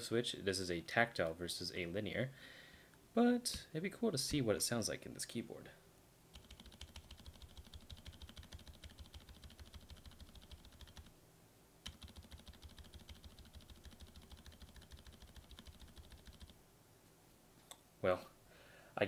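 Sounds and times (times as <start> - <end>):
muted keyboard typing: 6.3 - 11.1, 11.8 - 16.6.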